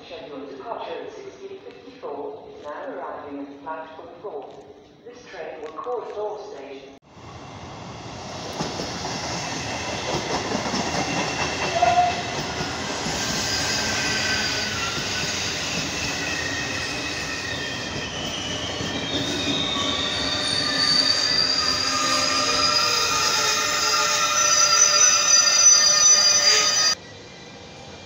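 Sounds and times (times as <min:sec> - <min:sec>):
train wheels rumbling on rail: 0:07.2 - 0:24.6
high wheel squeals: 0:13.2 - 0:27.0.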